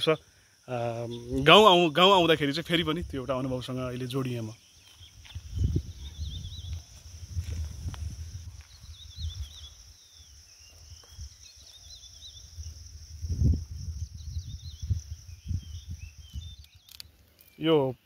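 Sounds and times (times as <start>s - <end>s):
insects buzzing: 0.0s - 18.0s
low rumble on microphone: 5.4s - 9.6s, 12.4s - 16.6s.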